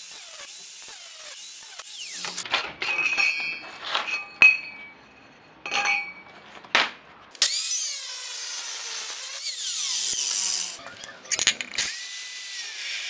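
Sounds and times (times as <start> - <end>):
cut-off saw cutting steel pipe: 0.0 - 2.7, 7.4 - 10.8, 11.7 - 13.0
metal pipes clinking on tile: 2.2 - 6.4, 10.8 - 11.9.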